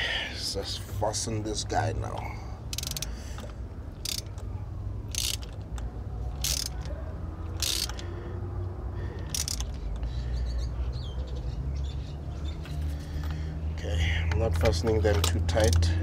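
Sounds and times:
socket ratchet clicking: 2.7 - 4.5, 5.1 - 6.9, 7.5 - 8.1, 9.2 - 10.1.

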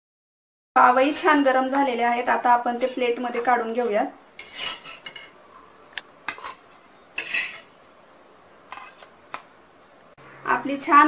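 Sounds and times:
metal spatula scraping griddle: 0.8 - 5.4, 6.3 - 7.8, 8.7 - 9.1.

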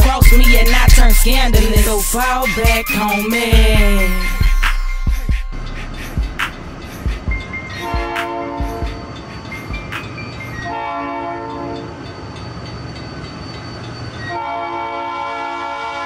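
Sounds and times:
hip-hop beat bass thumps: 0.0 - 9.0
low rumble: 3.6 - 7.2
train horn blasts: 10.6 - 12.0, 14.3 - 16.0.

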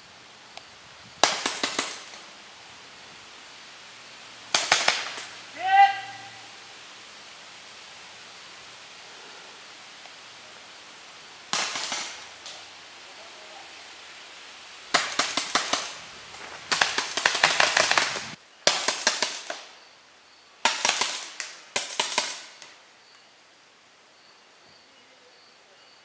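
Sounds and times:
paintball markers firing: 4.6 - 5.3, 11.6 - 12.6, 15.0 - 16.0, 16.7 - 19.7, 20.6 - 22.7.

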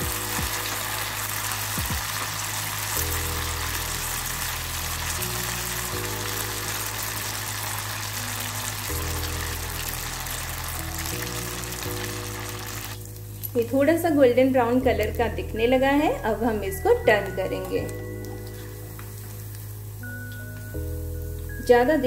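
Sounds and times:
food deep-frying in hot oil: 0.0 - 21.6
music of sustained chords: 0.0 - 22.0.

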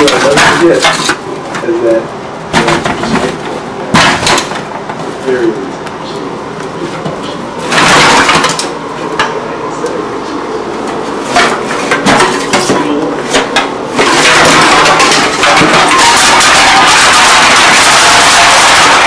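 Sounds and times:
empty cans clattering in a box: 14.0 - 19.0.

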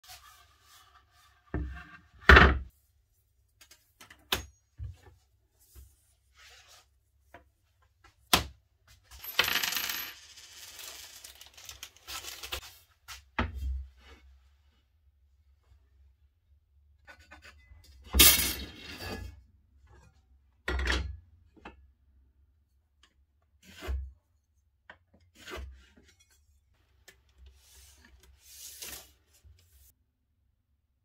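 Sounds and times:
rubbing and scraping: 0.0 - 2.2.

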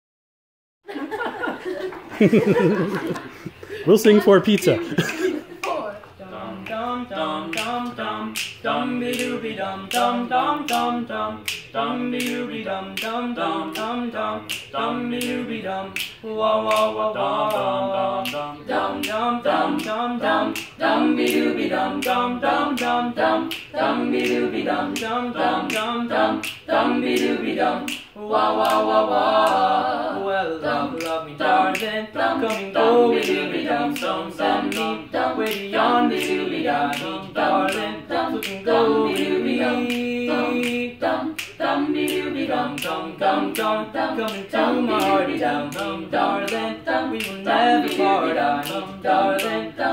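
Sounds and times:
choir singing a cappella: 0.9 - 3.7, 4.8 - 49.9
finger snaps: 16.0 - 16.9, 27.9 - 28.1.

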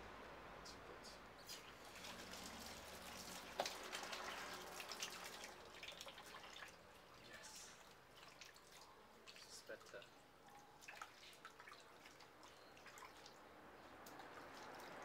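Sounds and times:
tap water splashing into basin: 2.0 - 6.8.

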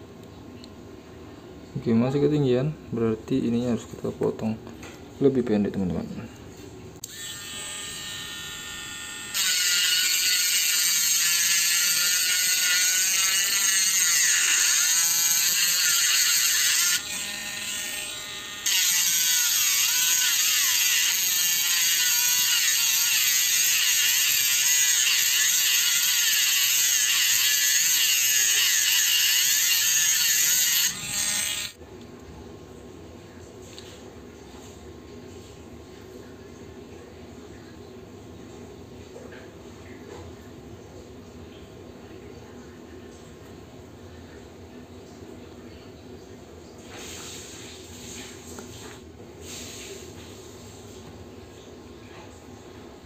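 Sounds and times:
electric rotary tool grinding: 7.0 - 31.8.

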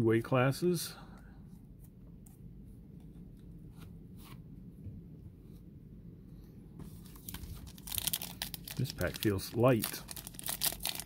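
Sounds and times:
steady low hum: 0.0 - 8.9
foil wrapper tearing: 7.1 - 11.0.

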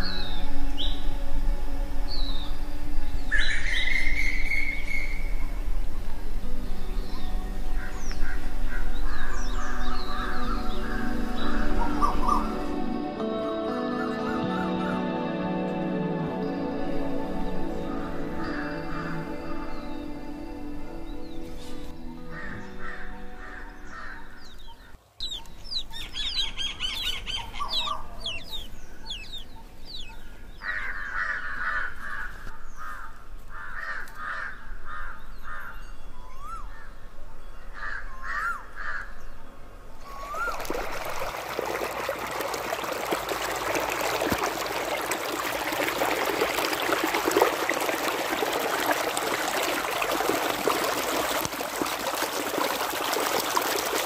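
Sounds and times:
birds chirping: 2.1 - 12.8, 17.4 - 31.9, 40.0 - 53.6
water pouring across a field: 40.0 - 54.0.

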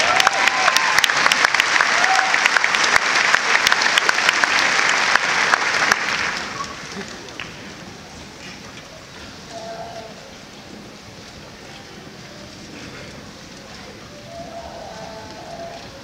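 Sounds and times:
large crowd applauding: 0.0 - 7.8.

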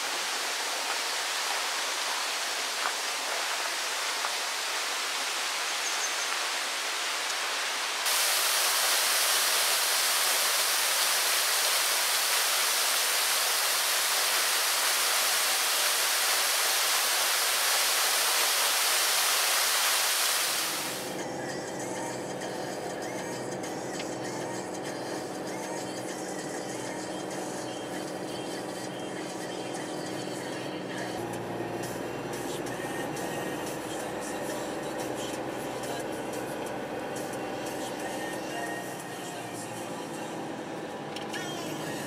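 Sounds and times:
waterfall splashing into pool: 0.0 - 21.1.

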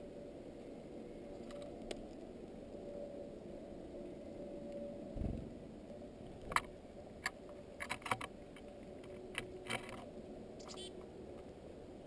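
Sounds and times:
birds pecking seed on wood: 6.2 - 11.5.

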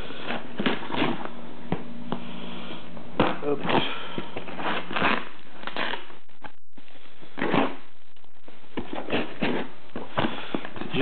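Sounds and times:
cardboard scraping and rustling: 3.2 - 6.1, 8.8 - 11.0
utility knife slitting packing tape: 3.2 - 6.1.

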